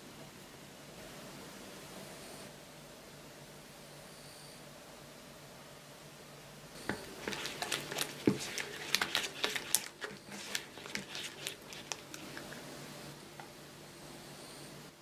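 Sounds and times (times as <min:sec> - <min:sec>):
spatula creaming butter in bowl: 0:06.8 - 0:12.7.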